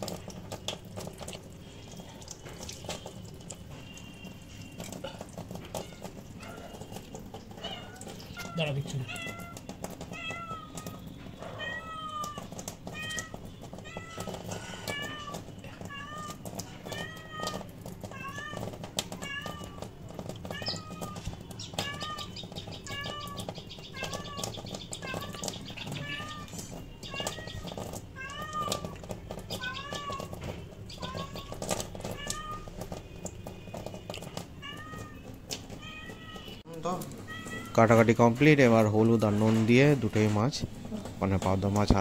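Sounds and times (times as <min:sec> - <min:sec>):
cat meowing: 0:05.7 - 0:32.8, 0:34.5 - 0:37.8.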